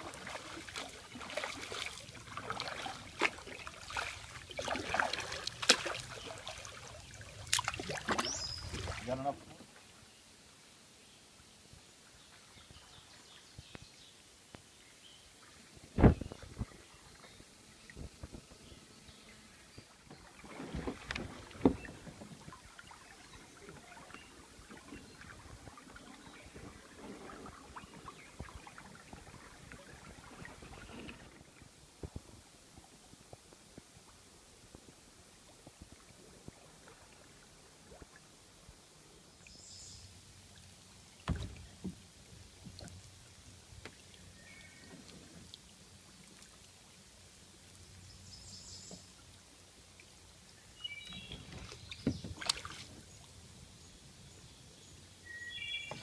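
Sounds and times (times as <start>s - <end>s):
water dripping off paddle: 0.0s - 9.7s, 19.8s - 31.4s, 51.0s - 53.0s
paddle strokes in water: 0.0s - 10.0s, 15.4s - 39.0s, 40.2s - 56.0s
paddle knocking on kayak: 20.6s - 22.4s, 41.2s - 42.0s.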